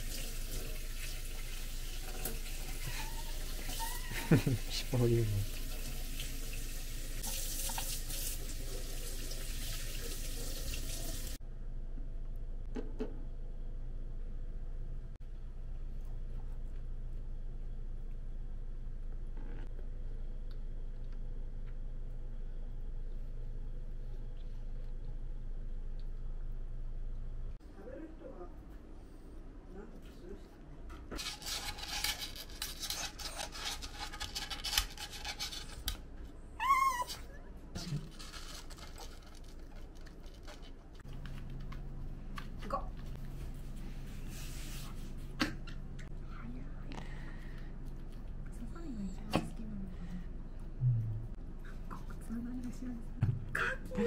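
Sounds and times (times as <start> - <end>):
kitchen tap running into sink: 0.0 - 11.4.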